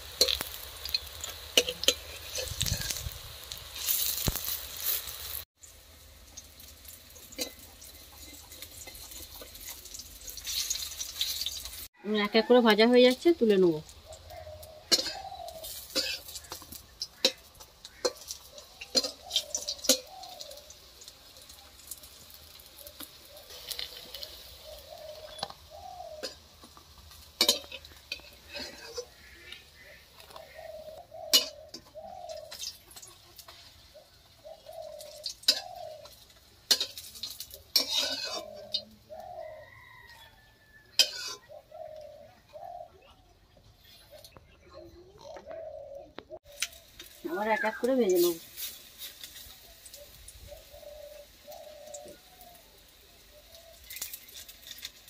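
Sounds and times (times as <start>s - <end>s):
metal spatula scraping a pan: 0.0s - 5.4s, 6.8s - 11.9s, 14.7s - 20.4s, 26.2s - 33.9s, 35.0s - 38.8s, 40.9s - 41.5s, 47.8s - 49.7s
faint frying sizzle: 0.0s - 43.0s, 46.4s - 55.0s
bird calling: 13.8s - 20.8s, 22.8s - 26.8s, 27.5s - 36.4s, 37.5s - 48.4s, 49.4s - 54.4s.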